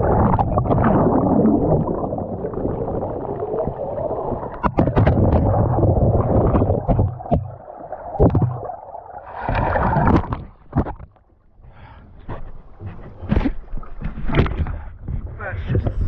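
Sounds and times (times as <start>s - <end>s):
splashing water: 0.0s - 11.2s
underwater churning and bubbling: 0.0s - 16.0s.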